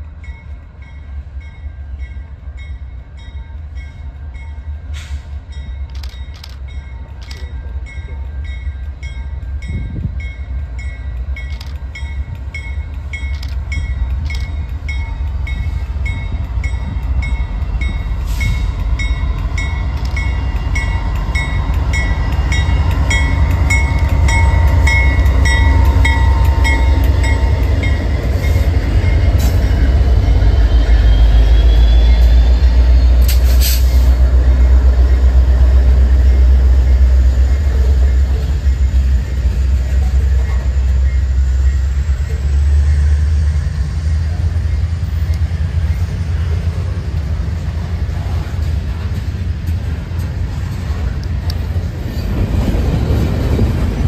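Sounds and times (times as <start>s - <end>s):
train rumbling: 0.0s - 54.0s
crossing bell dinging: 0.2s - 31.1s.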